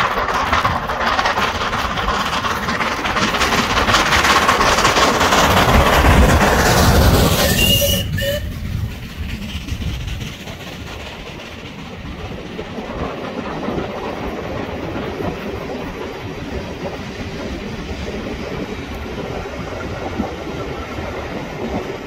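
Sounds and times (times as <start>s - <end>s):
carriages rumbling: 0.0s - 16.8s
steam locomotive working: 0.0s - 22.0s
wheels clicking over rail joints: 0.0s - 22.0s.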